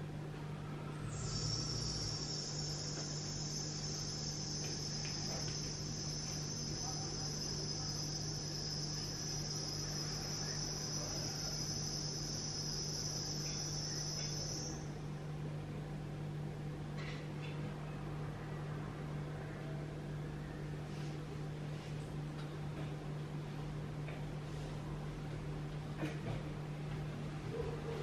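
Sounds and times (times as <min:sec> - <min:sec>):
low steady hum: 0:00.0 - 0:28.0
crickets chirping: 0:00.9 - 0:15.4.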